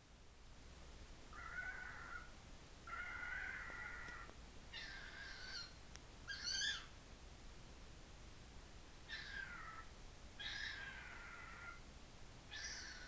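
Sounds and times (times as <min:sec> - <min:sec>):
cockatiel screaming: 0:01.4 - 0:02.3, 0:02.9 - 0:05.7, 0:06.3 - 0:06.9, 0:09.1 - 0:11.8, 0:12.5 - 0:13.0.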